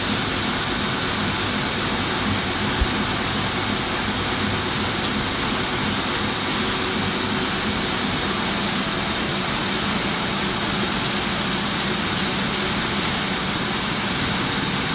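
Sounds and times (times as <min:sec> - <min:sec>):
printing press running: 0:00.0 - 0:14.9.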